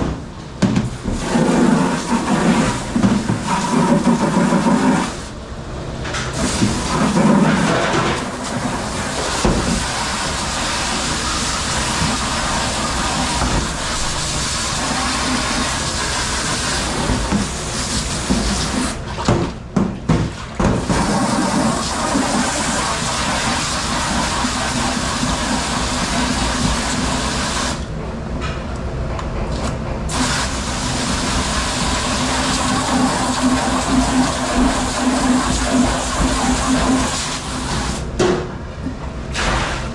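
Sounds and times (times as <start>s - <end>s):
water spraying onto dishes: 6.4s - 19.0s, 20.8s - 27.8s, 30.1s - 38.0s.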